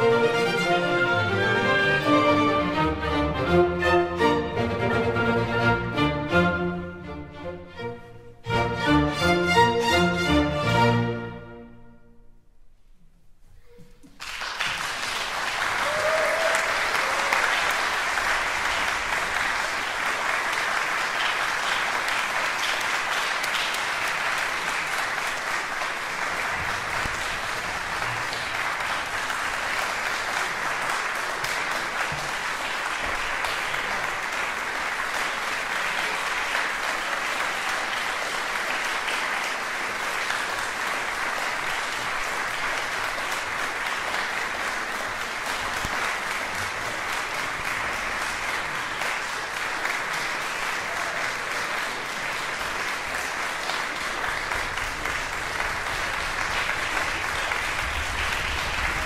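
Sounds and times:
audience applauding: 0:13.7 - 0:59.0.

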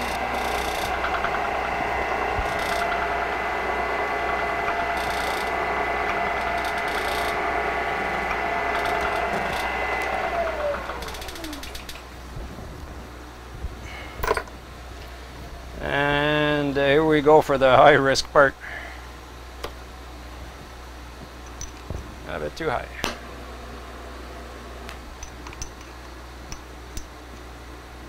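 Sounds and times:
spindle spinning down: 0:00.0 - 0:12.2
milling machine gear whine: 0:00.0 - 0:17.0.

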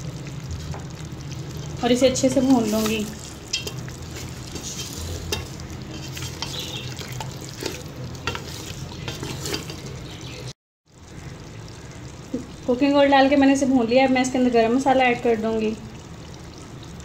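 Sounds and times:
meat sizzling in oil: 0:00.0 - 0:17.0
wooden spatula scraping pot: 0:01.6 - 0:10.5.

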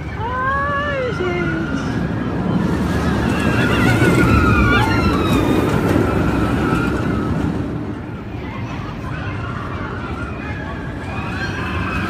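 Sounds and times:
roller coaster train rumbling past: 0:00.0 - 0:12.0
riders screaming: 0:00.2 - 0:07.7.

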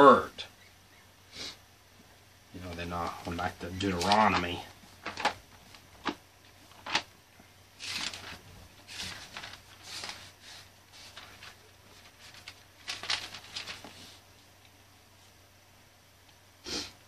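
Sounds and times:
paper pages rustling: 0:02.6 - 0:07.1, 0:07.8 - 0:14.5.

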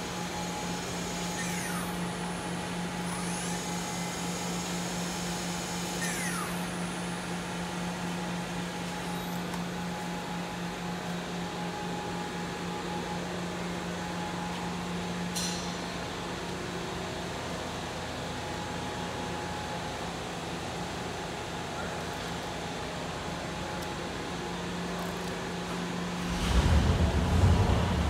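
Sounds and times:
machine hum and whir: 0:00.0 - 0:28.0
falling whine: 0:26.2 - 0:28.0.

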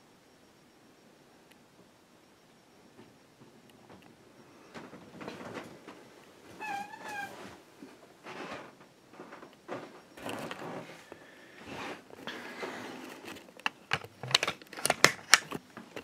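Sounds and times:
camera handling rustle: 0:13.0 - 0:16.0.

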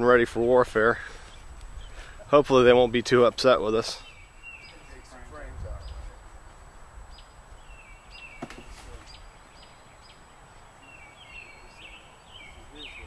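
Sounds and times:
birds chirping: 0:00.0 - 0:13.0
wind rumble on microphone: 0:04.9 - 0:08.2
sharp knock: 0:08.4 - 0:09.0.

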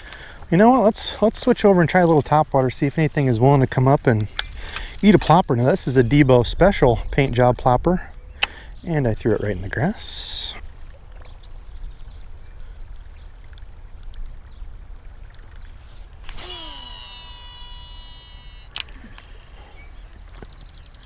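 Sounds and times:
fishing reel spool whining: 0:15.8 - 0:19.7
fishing reel click: 0:16.2 - 0:19.3.

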